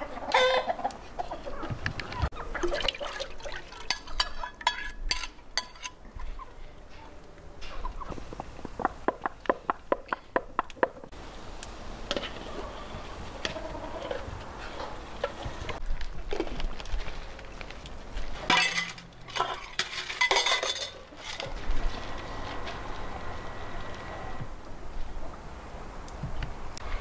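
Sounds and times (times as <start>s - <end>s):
metal spoon scraping steel bowl: 3.9s - 6.0s.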